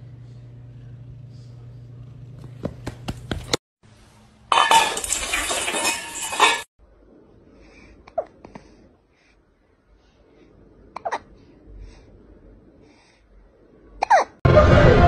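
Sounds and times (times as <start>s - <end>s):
bowl rattling across tiled floor: 4.5s - 6.7s.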